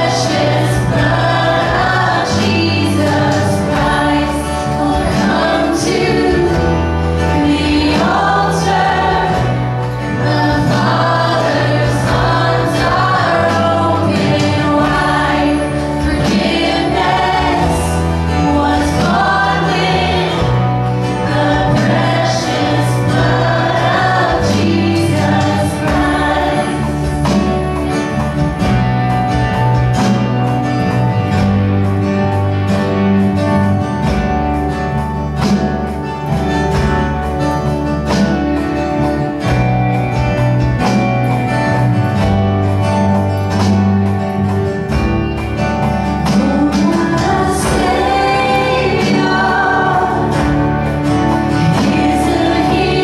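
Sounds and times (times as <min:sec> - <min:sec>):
people singing: 0:00.0 - 0:30.4, 0:45.6 - 0:53.0
drum beats: 0:00.0 - 0:53.0
live band playing: 0:00.0 - 0:53.0.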